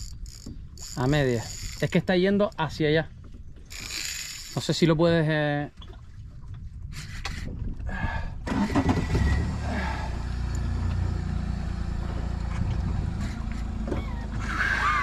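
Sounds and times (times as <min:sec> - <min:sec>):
boat engine running: 0:08.4 - 0:15.0.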